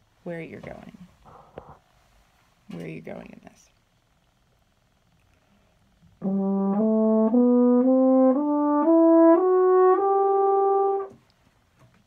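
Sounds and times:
french horn playing ascending scale: 6.2 - 11.2.

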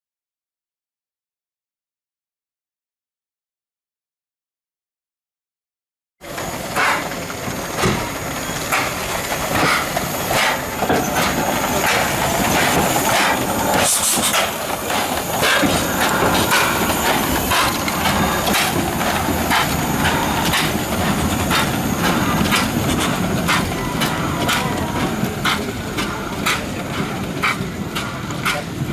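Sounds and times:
train rattling on rails: 6.2 - 28.9
brief high hiss: 13.7 - 14.6.

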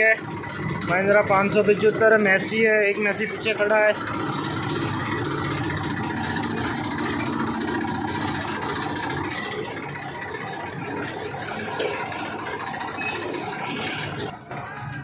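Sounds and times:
tractor diesel engine running: 0.0 - 15.0.

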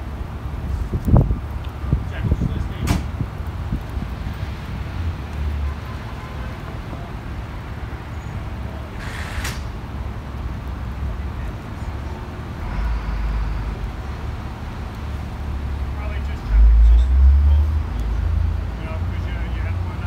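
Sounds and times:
heavy vehicles rumbling: 0.0 - 20.0
air hiss: 9.0 - 9.8.

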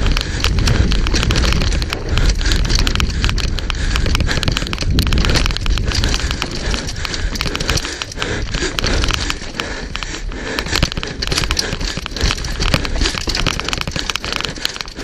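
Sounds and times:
bike clattering over rough ground: 0.0 - 15.0
wind buffeting microphone: 0.0 - 15.0.

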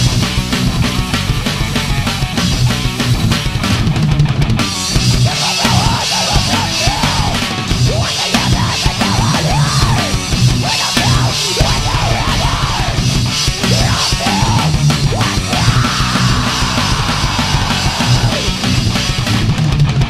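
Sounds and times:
drum kit: 0.0 - 20.0
heavy rock music: 0.0 - 20.0
sliding lead guitar line: 0.0 - 20.0.

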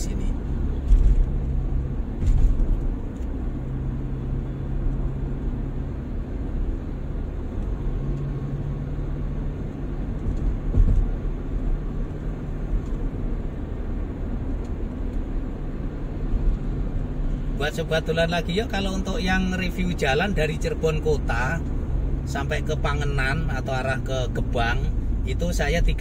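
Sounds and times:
car engine hum: 0.0 - 26.0
brief thump: 10.6 - 11.2.

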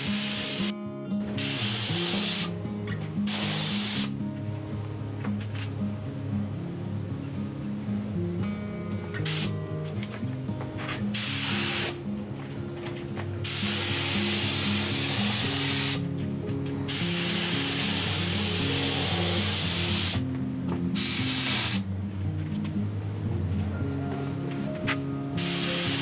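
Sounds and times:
spray gun hissing: 0.0 - 0.7, 1.4 - 2.6, 3.2 - 4.1, 9.2 - 9.5, 11.2 - 12.0, 13.4 - 16.0, 16.9 - 20.2, 21.0 - 21.9, 25.4 - 26.0
background music: 0.0 - 26.0.

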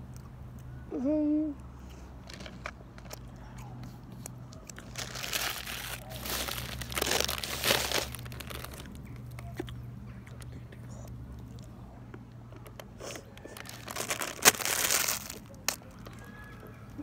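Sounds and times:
person humming: 0.9 - 1.6
plastic snack packet crinkling: 4.7 - 9.7, 12.6 - 17.0.

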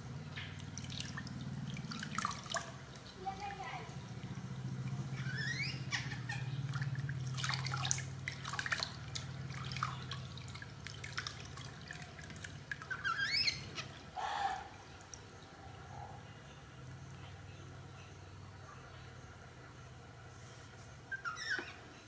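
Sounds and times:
low steady hum: 0.0 - 22.0
water splashing into plastic basin: 0.4 - 5.3, 6.7 - 14.1.

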